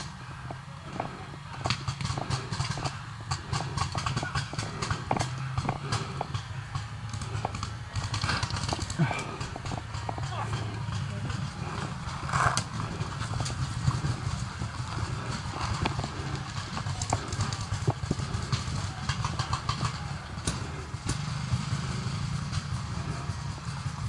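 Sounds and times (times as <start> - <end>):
paintball markers firing: 0.0 - 10.8
low rumble of movement: 0.0 - 24.0.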